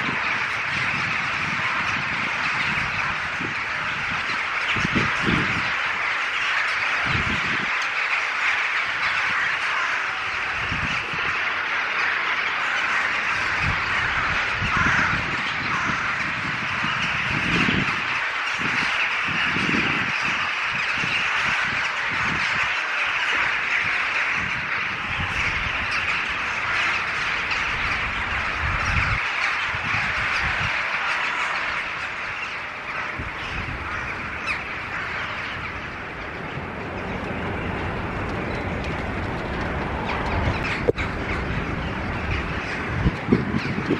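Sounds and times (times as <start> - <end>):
flock of rooks cawing: 0.0 - 43.9.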